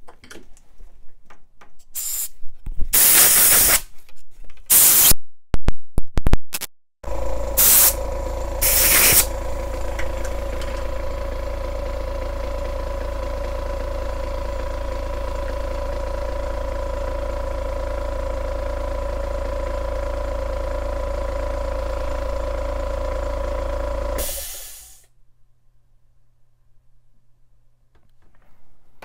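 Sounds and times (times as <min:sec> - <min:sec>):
short loud hiss: 0:02.0 - 0:02.4, 0:24.2 - 0:25.1
small motor humming: 0:07.0 - 0:25.0.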